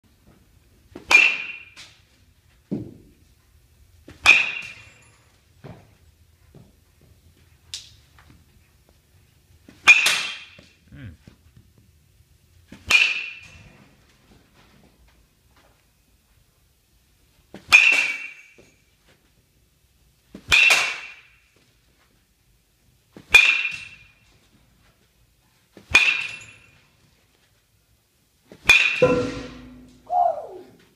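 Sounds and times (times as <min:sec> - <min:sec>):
metal bat pinging on ball: 0:01.0 - 0:01.8, 0:04.1 - 0:05.0, 0:09.8 - 0:10.6, 0:12.8 - 0:13.6, 0:17.7 - 0:18.6, 0:20.5 - 0:21.3, 0:23.3 - 0:24.1, 0:25.9 - 0:26.6, 0:28.7 - 0:30.3.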